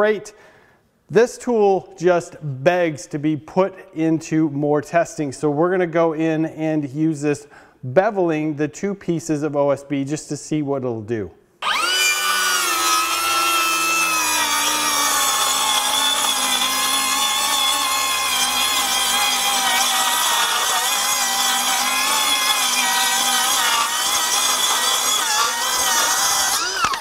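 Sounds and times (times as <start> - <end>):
circular saw cutting board: 11.6 - 27.0.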